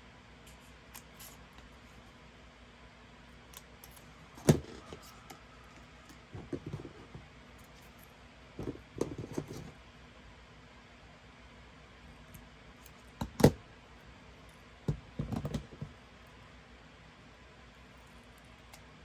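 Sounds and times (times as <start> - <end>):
scissors snipping paper: 0.5 - 1.4, 3.4 - 5.4.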